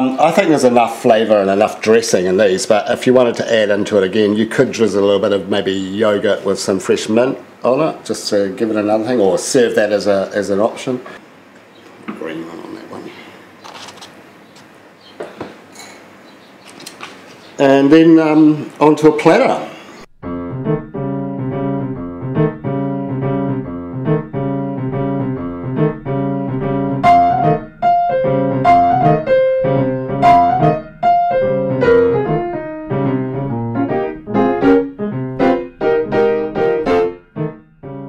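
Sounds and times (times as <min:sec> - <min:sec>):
higher keyboard melody: 0:20.1 - 0:38.0
keyboard playing repeated chords: 0:20.1 - 0:38.0.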